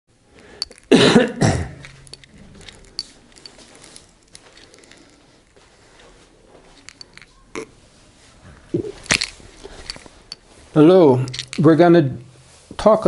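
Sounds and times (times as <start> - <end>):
man coughing: 0.9 - 1.9.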